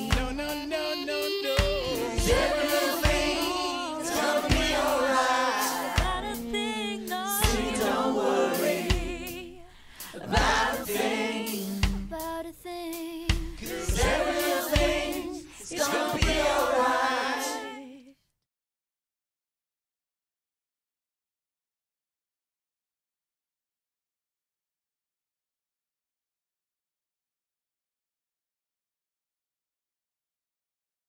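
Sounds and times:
voices singing in harmony: 0.0s - 12.2s, 13.3s - 18.1s
reggae band playing: 0.0s - 12.3s, 13.3s - 17.6s.

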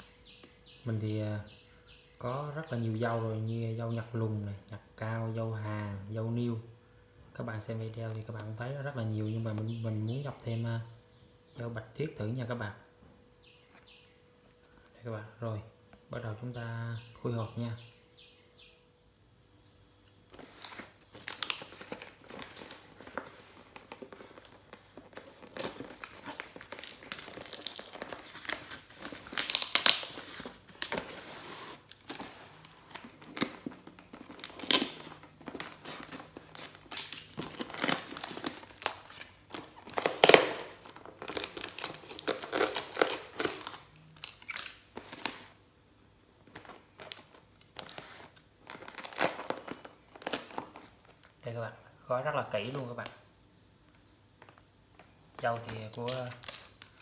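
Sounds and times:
parcel wrapping crinkling and tearing: 20.2s - 45.6s, 46.4s - 51.6s, 54.4s - 57.0s.

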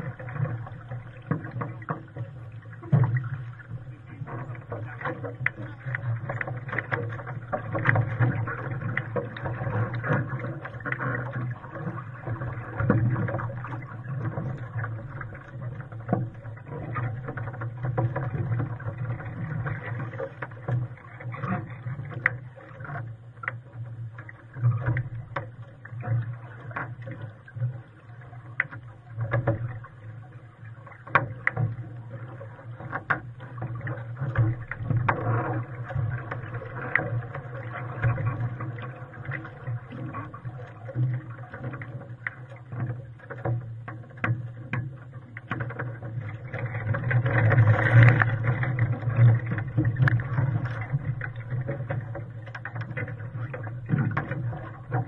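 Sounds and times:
water slapping against hull: 0.0s - 55.0s.

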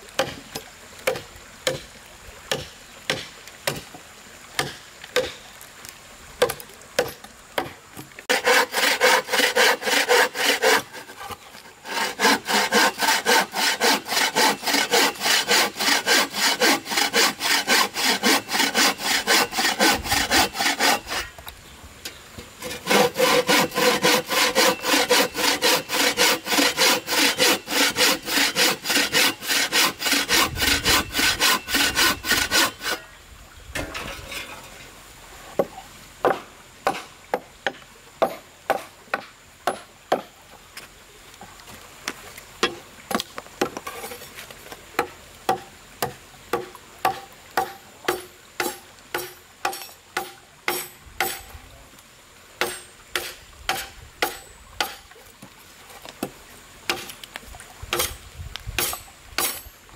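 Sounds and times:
machete chopping wooden plank: 0.2s - 1.9s, 2.5s - 3.9s, 4.6s - 5.4s, 6.4s - 10.8s, 35.6s - 40.3s, 45.0s - 51.5s, 52.6s - 55.0s, 56.9s - 57.1s, 57.9s - 58.2s, 58.8s - 59.8s
bow saw cutting wood: 6.4s - 21.4s, 22.6s - 33.1s, 45.5s - 51.5s, 52.6s - 55.0s, 57.9s - 58.2s, 58.8s - 59.7s.

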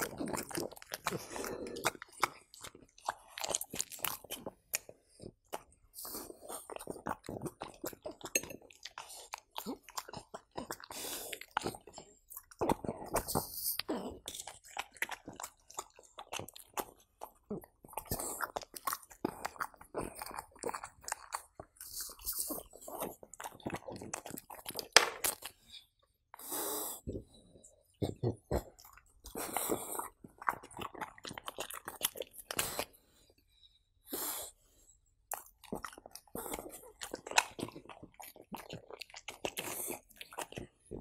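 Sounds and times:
dog chewing food: 28.5s - 32.8s.

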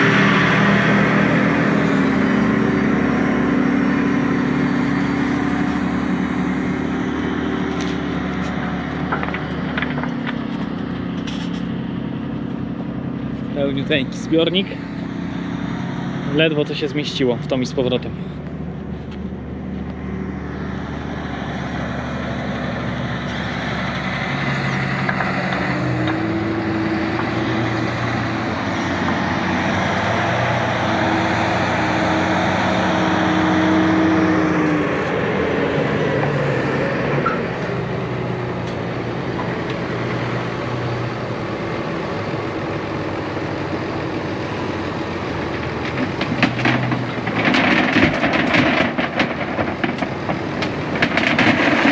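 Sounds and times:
tractor engines running: 0.0s - 51.9s
stone picker working: 44.5s - 51.9s.

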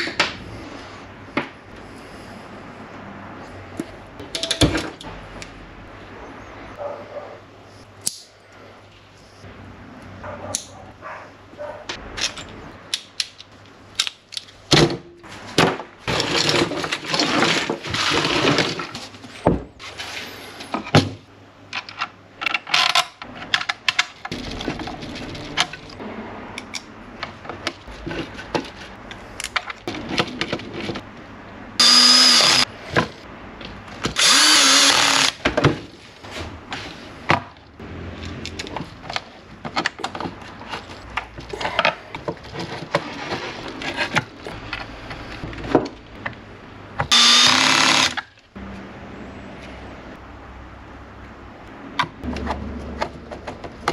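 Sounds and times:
small parts and wires rattling: 21.7s - 26.0s
cordless drill whining: 31.8s - 32.6s, 34.2s - 35.3s, 47.1s - 48.2s.

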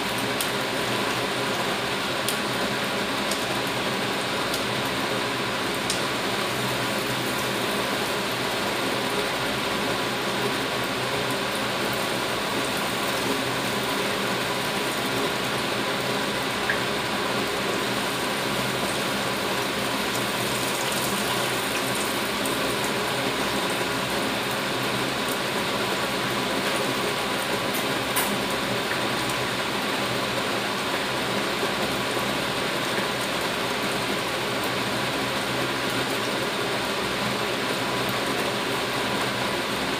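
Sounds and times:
patties sizzling in oil: 0.0s - 31.3s
fan humming: 0.0s - 39.9s.

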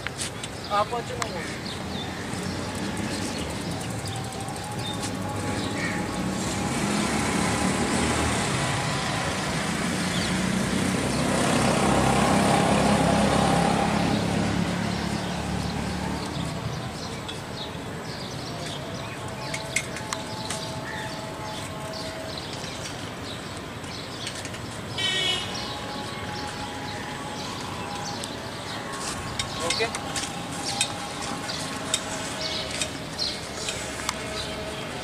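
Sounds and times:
vehicle passing close by: 1.9s - 17.1s.

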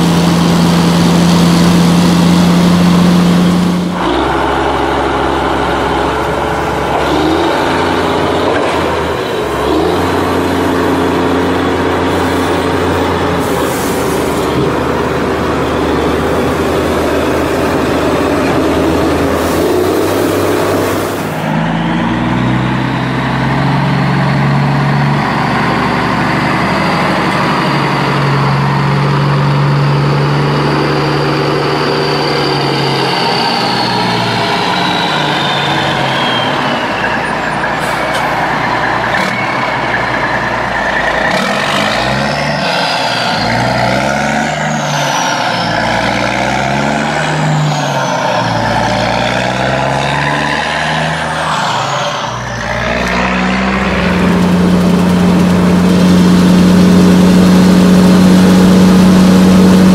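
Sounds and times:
heavy truck engine running: 0.0s - 59.9s.

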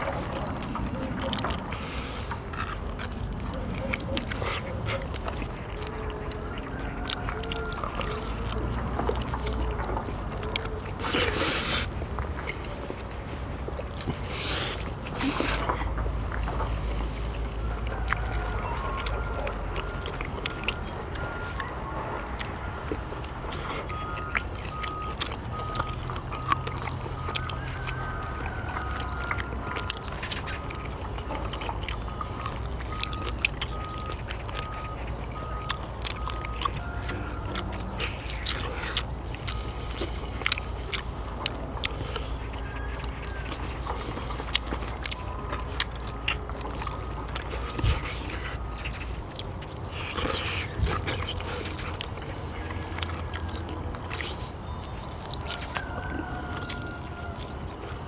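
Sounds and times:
chewing: 0.0s - 58.0s
low vehicle engine rumble: 0.0s - 58.0s
reversing alarm beeping: 17.4s - 58.0s.

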